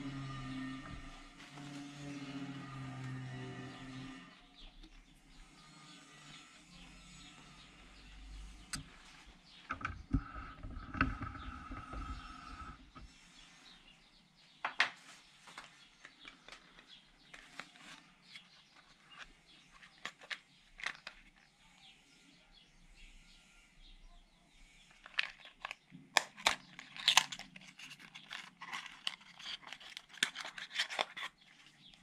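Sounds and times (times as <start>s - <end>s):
low rubbing and knocks: 9.7s - 13.1s.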